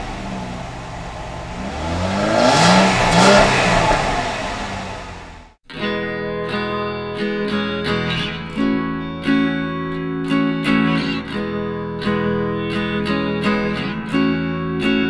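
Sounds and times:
strummed acoustic guitar: 0:05.7 - 0:15.0.

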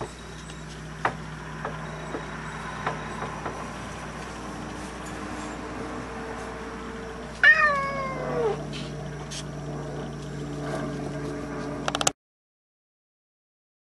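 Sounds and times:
cat meowing: 0:07.4 - 0:08.6.

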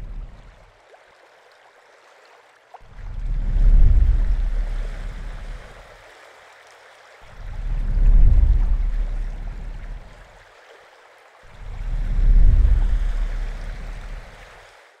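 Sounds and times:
water surging: 0:00.0 - 0:15.0.

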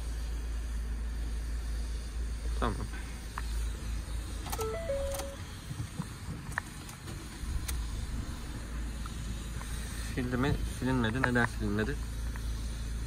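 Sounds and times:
button clicks: 0:04.5 - 0:05.4
three-note electronic chime: 0:04.6 - 0:05.4.

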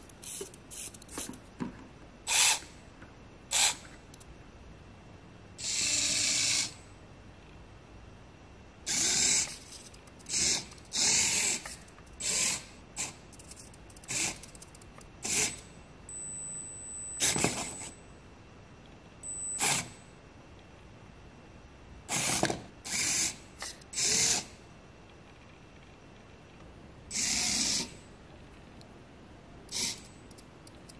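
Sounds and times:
toy car motor whirring: 0:05.6 - 0:06.7, 0:08.9 - 0:12.6, 0:13.4 - 0:15.6, 0:27.1 - 0:27.9, 0:29.7 - 0:30.1.

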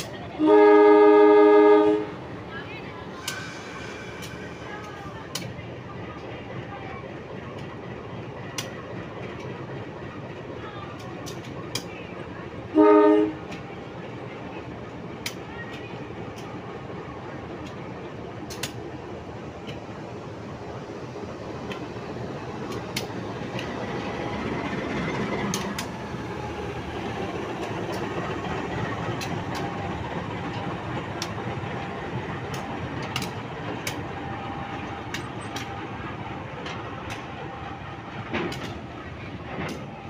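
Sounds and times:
diesel locomotive engine rumble: 0:00.0 - 0:40.0
wheels clicking over rail joints: 0:17.6 - 0:18.9, 0:22.6 - 0:34.2, 0:38.1 - 0:40.0.

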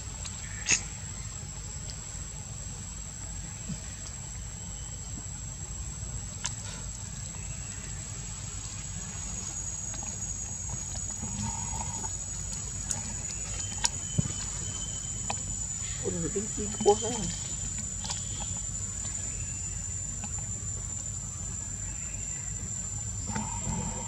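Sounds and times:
high-pitched insect drone: 0:07.2 - 0:24.0.

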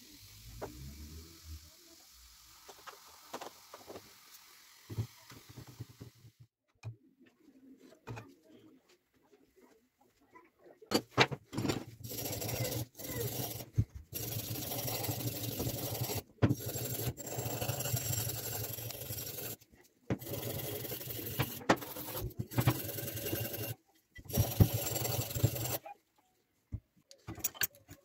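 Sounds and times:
blade scraping on metal: 0:12.1 - 0:19.6.

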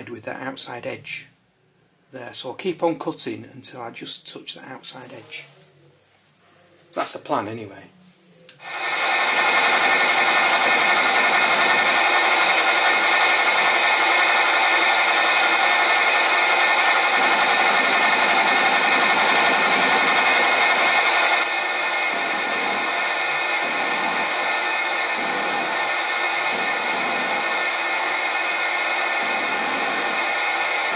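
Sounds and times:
bench lathe whining: 0:08.6 - 0:30.9.

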